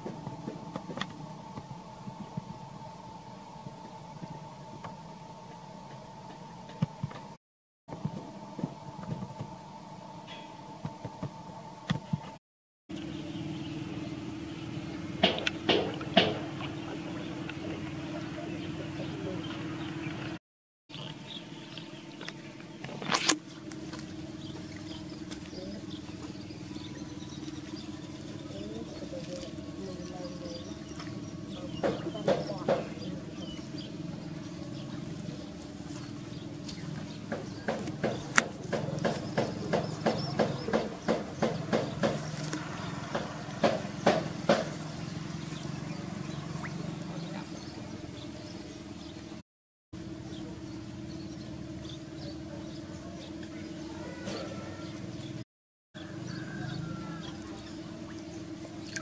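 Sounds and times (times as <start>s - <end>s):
steady low hum: 0.0s - 49.4s, 50.0s - 55.4s, 56.0s - 59.0s.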